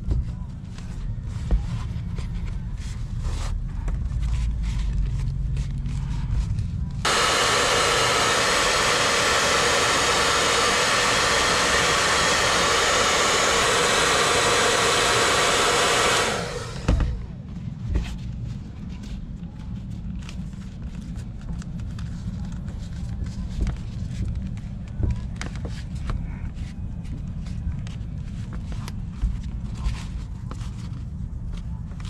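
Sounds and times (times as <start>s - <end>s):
hot-air blower hissing: 7.0s - 17.3s.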